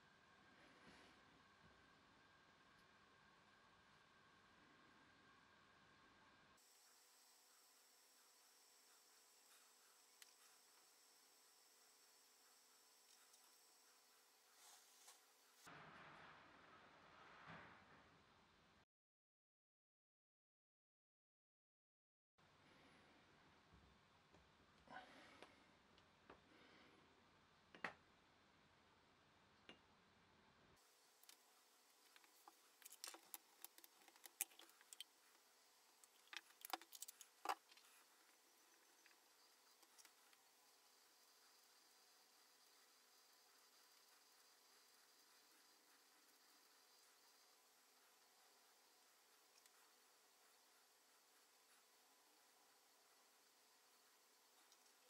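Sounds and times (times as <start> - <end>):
background hiss: 6.6 - 15.7, 30.8 - 55.0.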